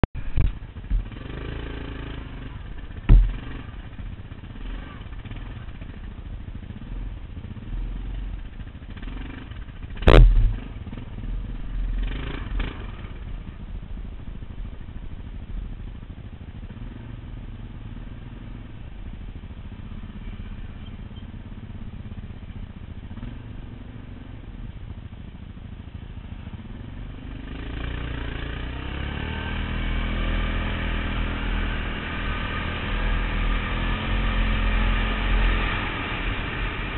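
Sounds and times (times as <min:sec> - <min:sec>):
quad engine running: 0:00.0 - 0:36.9
sharp knocks: 0:03.1 - 0:03.6, 0:10.0 - 0:10.6.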